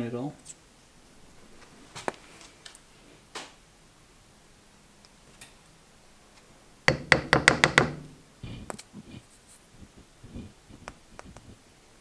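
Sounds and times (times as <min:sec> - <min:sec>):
sharp knocks on hard surface: 0:06.9 - 0:08.2.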